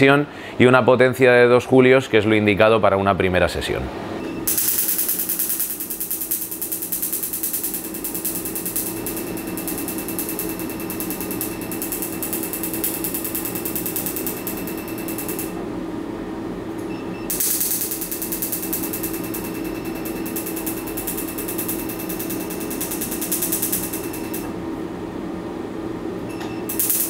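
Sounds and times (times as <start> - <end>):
steady hum: 3.9 - 27.0
laser pulses snapping: 4.5 - 15.6, 17.3 - 24.5.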